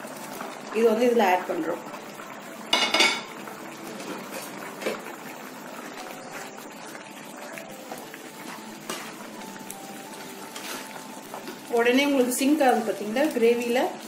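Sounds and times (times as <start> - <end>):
gravy bubbling: 3.3 - 14.0
spatula stirring: 10.2 - 13.4.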